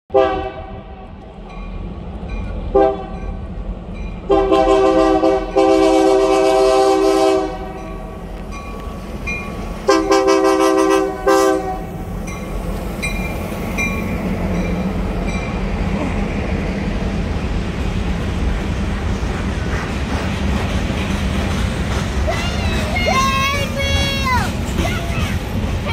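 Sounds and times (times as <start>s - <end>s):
locomotive air horn: 0.1s - 1.1s, 2.8s - 3.2s, 4.3s - 7.8s, 9.9s - 12.0s
train cars rumbling on rails: 0.1s - 25.9s.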